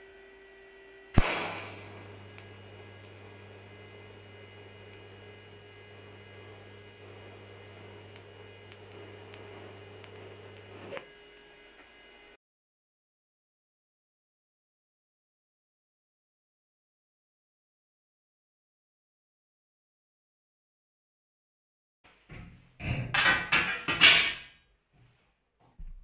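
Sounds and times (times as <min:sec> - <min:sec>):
welding arc crack: 0:01.2 - 0:11.0
welding arc buzzing: 0:01.2 - 0:12.3.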